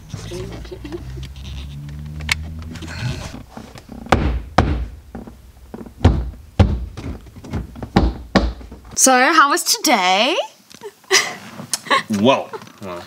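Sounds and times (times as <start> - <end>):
plastic trim thunking into place: 4.0 - 9.0.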